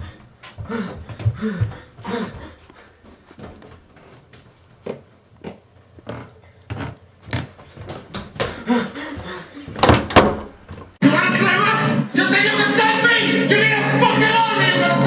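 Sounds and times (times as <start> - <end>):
footsteps on carpeted stairs: 0.0 - 11.0
music: 11.0 - 15.0.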